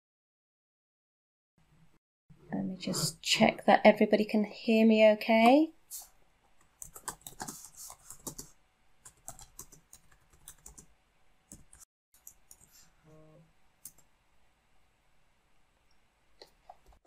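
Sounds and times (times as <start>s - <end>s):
computer keyboard typing: 6.6s - 10.9s.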